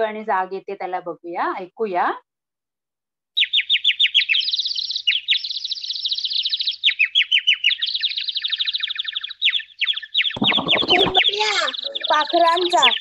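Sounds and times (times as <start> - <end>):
birds chirping: 3.4 - 13.0.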